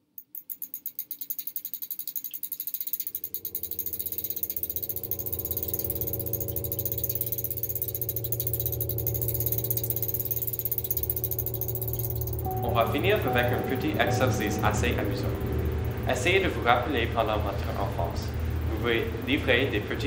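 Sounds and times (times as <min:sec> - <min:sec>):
bicycle freewheel ticking: 0:00.0 - 0:20.0
low steady hum: 0:02.4 - 0:20.0.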